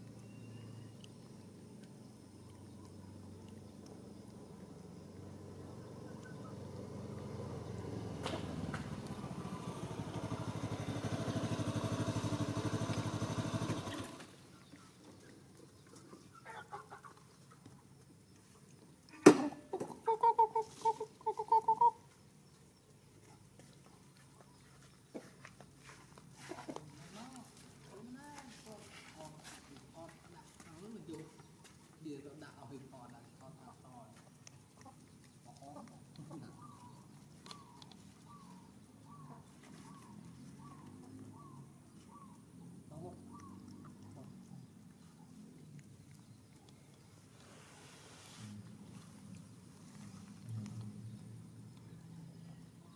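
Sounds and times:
chicken clucking: 0:15.7 - 0:17.8, 0:19.4 - 0:22.2.

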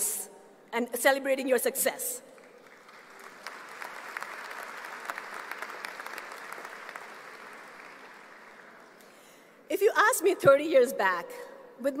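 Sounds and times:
large audience applauding: 0:02.4 - 0:09.0.

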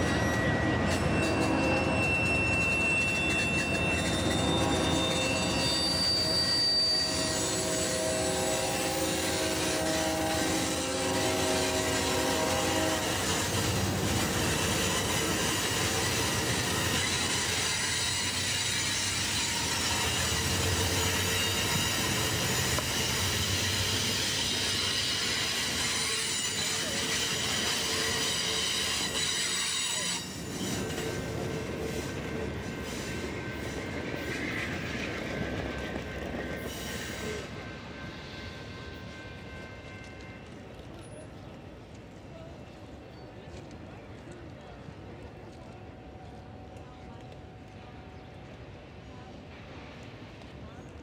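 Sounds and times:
high squealing tones: 0:00.0 - 0:09.2
train wheels rumbling on rail: 0:00.0 - 0:51.0.

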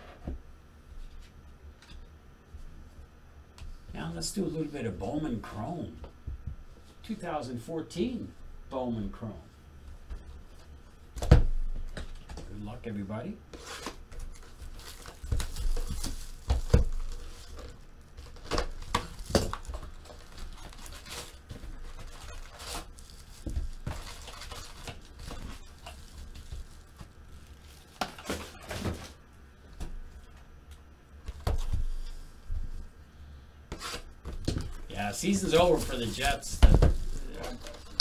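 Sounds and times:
foil packs crinkling: 0:13.6 - 0:29.2, 0:34.8 - 0:38.0.

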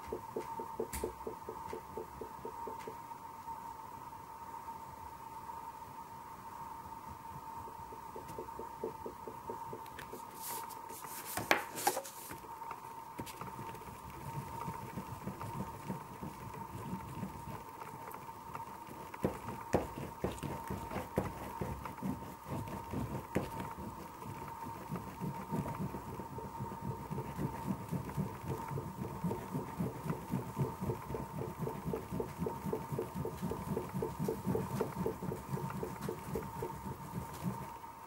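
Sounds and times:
pastel scrubbing on paper: 0:10.0 - 0:12.4, 0:18.8 - 0:37.7.

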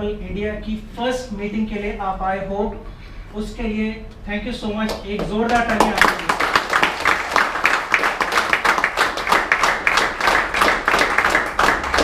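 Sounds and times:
audience applauding: 0:05.5 - 0:12.0.

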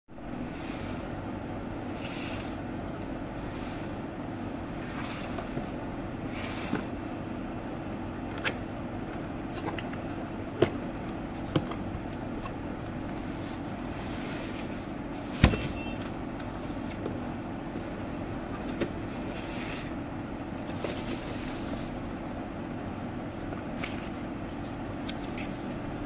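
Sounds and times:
steady background hum: 0:00.1 - 0:26.0
cardboard and bubble wrap rustling: 0:09.0 - 0:17.2, 0:18.7 - 0:26.0.

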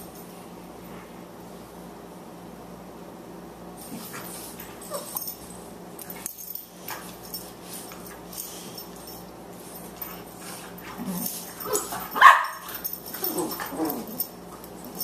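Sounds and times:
dogs scuffling and mouthing: 0:03.8 - 0:15.0.

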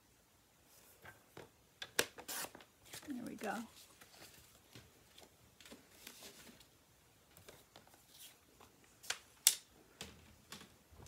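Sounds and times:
card stock rustling and tapping: 0:07.3 - 0:10.8.

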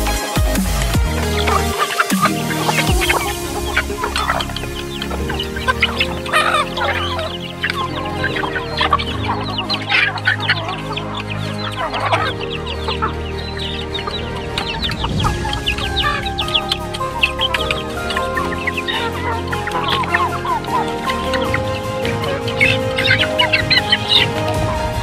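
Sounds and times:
background music with low notes: 0:00.0 - 0:25.0
chickens clucking: 0:00.6 - 0:25.0.

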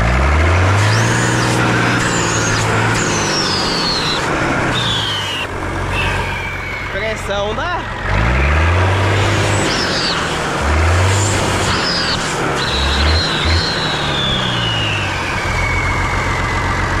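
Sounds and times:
tractor diesel engine running: 0:00.0 - 0:17.0
high whine falling in pitch: 0:01.3 - 0:07.4, 0:11.8 - 0:17.0.

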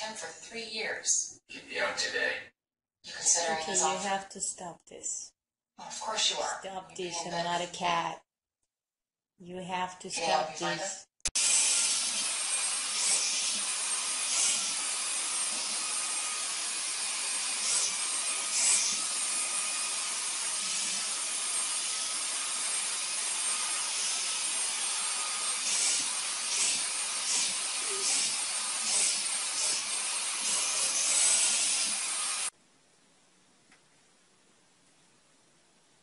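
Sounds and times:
handheld vacuum cleaner running: 0:11.3 - 0:32.5.

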